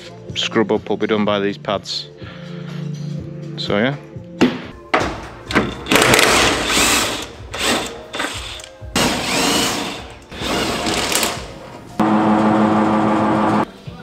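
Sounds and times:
impact wrench hammering: 0:05.0 - 0:11.4.

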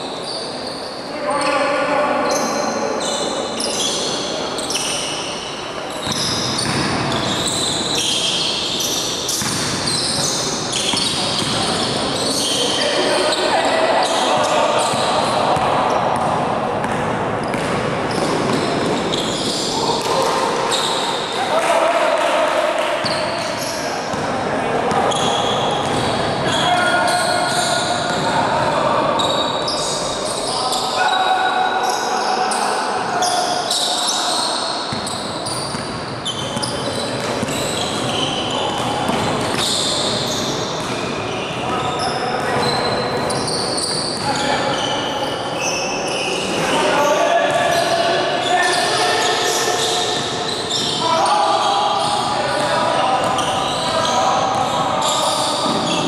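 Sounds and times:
sneakers squeaking on floor: 0:00.0 - 0:21.4, 0:22.8 - 0:56.0
players' voices: 0:00.0 - 0:56.0
basketball bouncing on court: 0:06.0 - 0:07.4, 0:09.3 - 0:11.9, 0:14.4 - 0:19.0, 0:24.9 - 0:26.2, 0:35.7 - 0:36.0, 0:36.6 - 0:41.1
basketball bouncing: 0:09.4 - 0:09.8.

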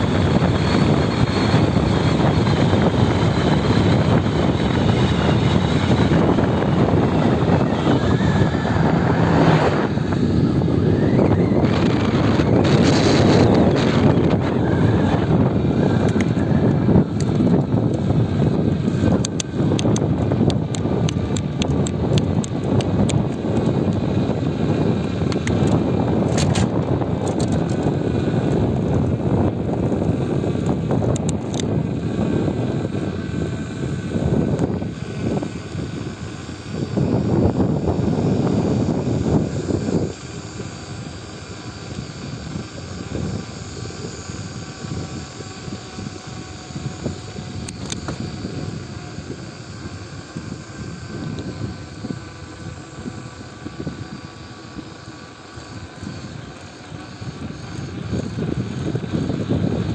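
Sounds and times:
bicycle riding rumble: 0:00.0 - 0:59.9
wind buffeting microphone: 0:00.0 - 0:59.9
sharp clicks: 0:16.0 - 0:18.0, 0:19.2 - 0:24.0, 0:25.3 - 0:27.9, 0:47.2 - 0:48.3.

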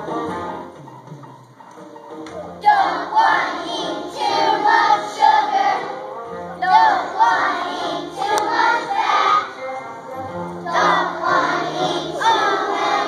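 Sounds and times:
backing music: 0:00.0 - 0:13.0
children singing in unison: 0:02.6 - 0:13.0.

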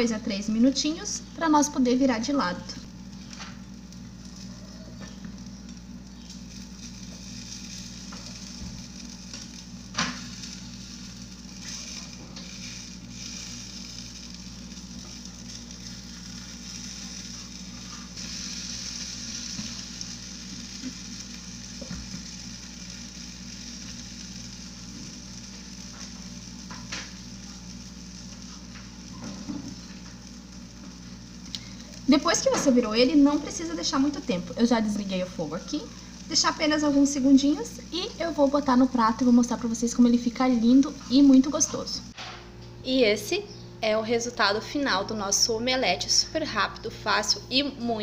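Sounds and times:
omelette sizzling in a pan: 0:01.5 - 0:42.0.

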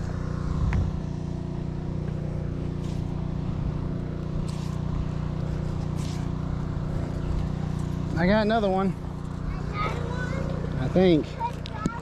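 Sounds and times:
low motor drone: 0:00.0 - 0:12.0.

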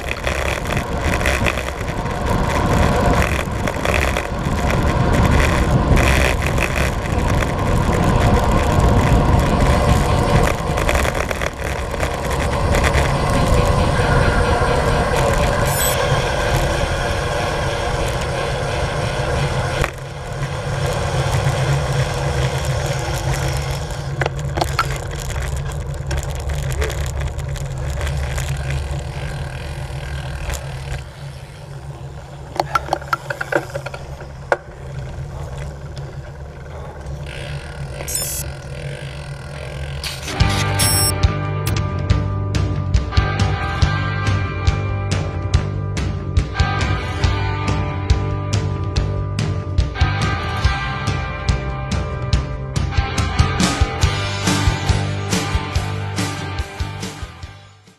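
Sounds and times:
wind rushing over microphone: 0:00.0 - 0:29.0
bike tyre road noise: 0:00.0 - 0:57.9
sharp clicks: 0:37.2 - 0:39.0, 0:39.6 - 0:41.8.

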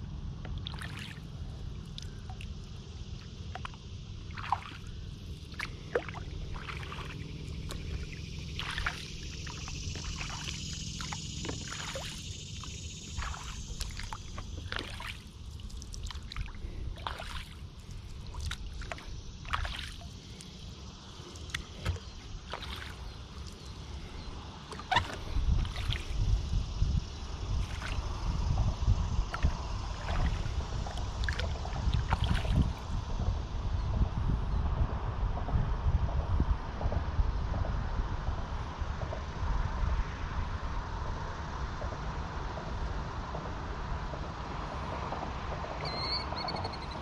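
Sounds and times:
steady low rumble: 0:00.0 - 0:47.0
paddle splashing in water: 0:00.6 - 0:01.2, 0:03.5 - 0:20.6, 0:21.2 - 0:23.8, 0:24.6 - 0:26.2, 0:27.6 - 0:28.2, 0:29.3 - 0:32.8
water dripping off paddle: 0:05.5 - 0:20.6, 0:24.7 - 0:26.1.

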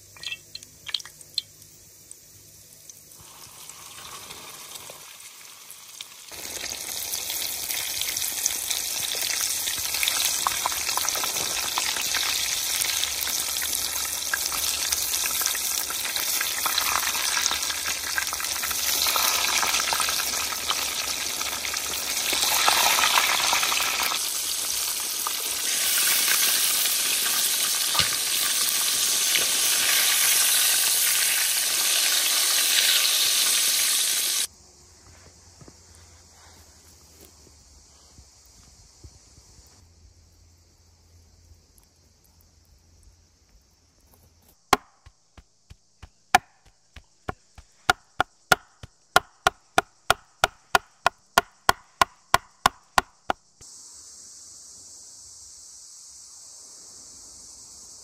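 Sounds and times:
chicken deep-frying in oil: 0:00.0 - 0:34.5.

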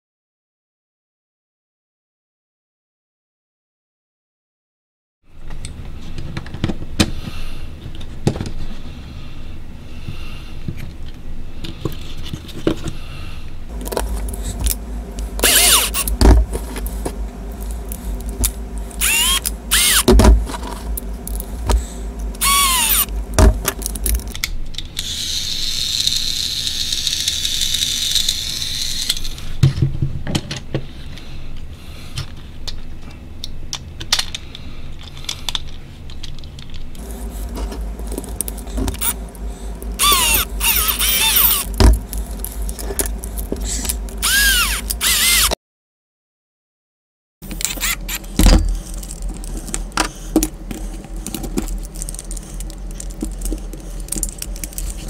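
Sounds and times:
toy train motor whirring: 0:13.9 - 0:29.6, 0:37.0 - 0:45.6, 0:47.4 - 0:55.0
plastic and metal parts clicking: 0:47.5 - 0:55.0.

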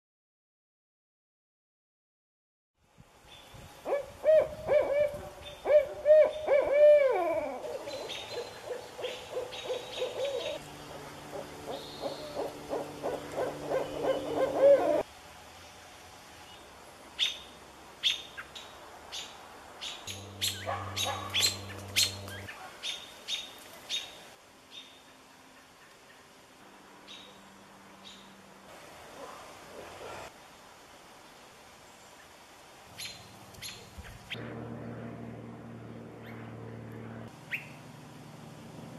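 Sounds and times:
owls hooting: 0:03.9 - 0:15.1, 0:20.1 - 0:22.5.

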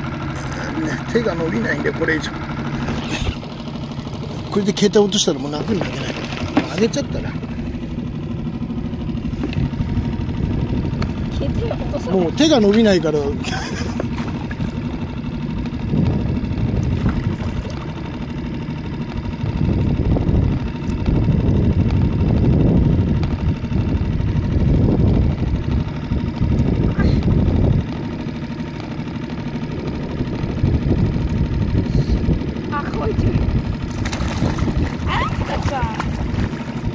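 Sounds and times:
boat engine rumbling: 0:00.0 - 0:36.9.

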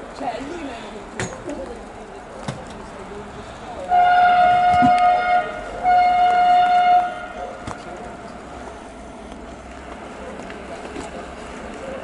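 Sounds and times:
locomotive horn blast: 0:03.9 - 0:07.6.

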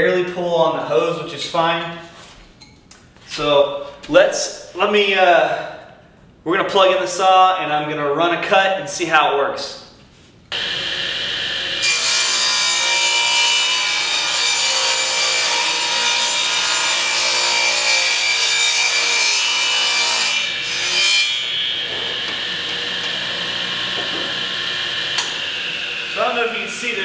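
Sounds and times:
table saw motor whine: 0:10.5 - 0:13.2, 0:21.5 - 0:27.0.

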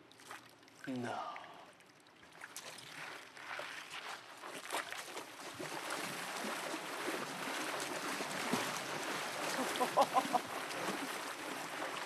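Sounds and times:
stream water rushing: 0:05.6 - 0:12.0.

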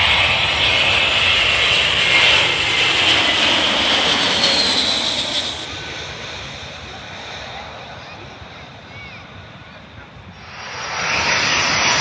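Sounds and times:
jet airliner passing overhead: 0:00.0 - 0:12.0.

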